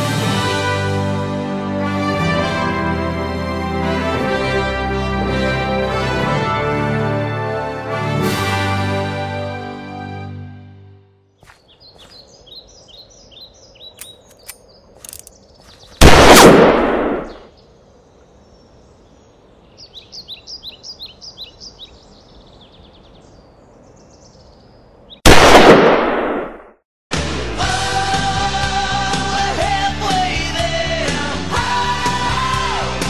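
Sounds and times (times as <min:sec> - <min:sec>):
birds chirping: 0:11.4 - 0:16.3, 0:17.0 - 0:25.3
rock music: 0:27.1 - 0:33.0.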